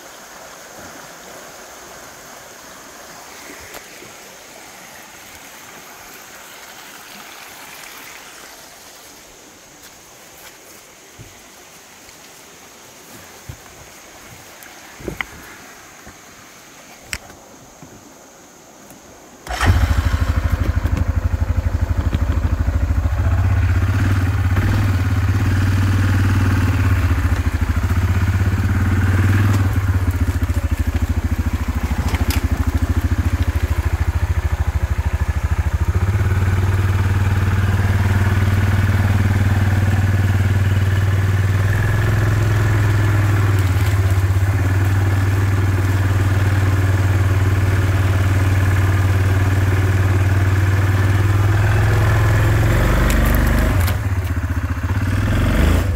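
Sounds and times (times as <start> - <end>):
atv engine running: 19.4 - 55.9.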